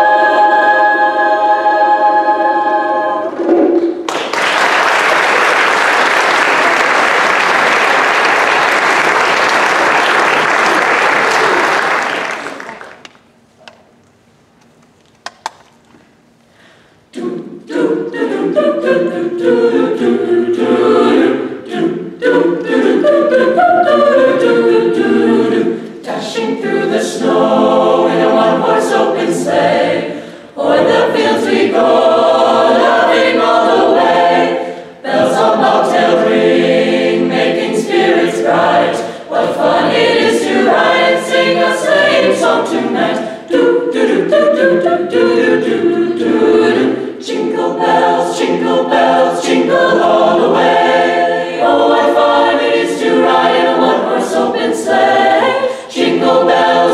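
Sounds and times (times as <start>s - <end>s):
choir singing a cappella: 0.0s - 4.0s, 17.1s - 56.9s.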